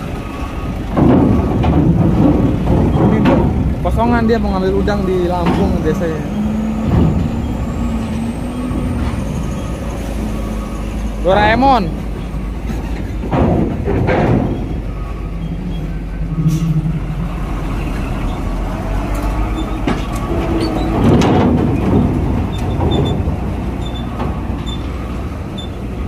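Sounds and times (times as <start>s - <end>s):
truck engines passing: 0.0s - 26.0s
sharp knocks: 1.0s - 4.1s, 12.6s - 14.9s.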